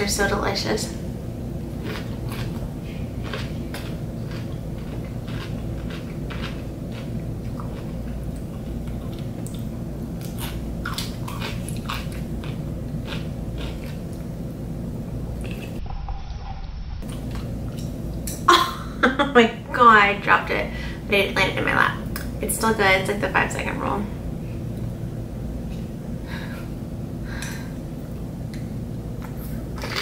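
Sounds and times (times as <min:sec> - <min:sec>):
steady low hum: 0:00.0 - 0:30.0
crunching and chewing cucumber: 0:01.7 - 0:14.3.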